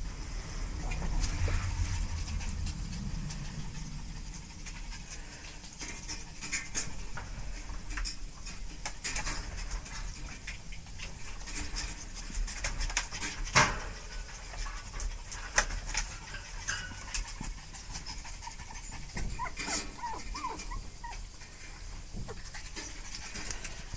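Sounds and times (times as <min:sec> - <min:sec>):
puppy whimpering: 0:18.0 - 0:21.4.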